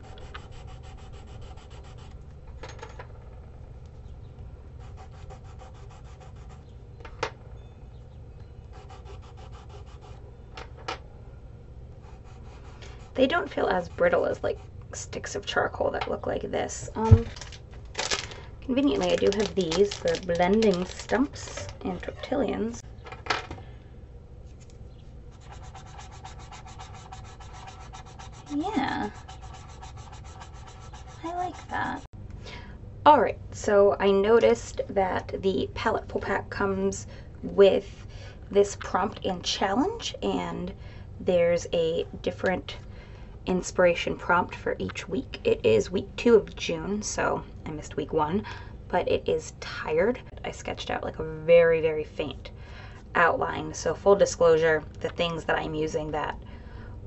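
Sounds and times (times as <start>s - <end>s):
chalk pastel scratching on paper: 0.0s - 2.1s, 4.8s - 6.6s, 8.7s - 10.2s, 25.3s - 32.1s
low steady hum: 0.0s - 57.0s.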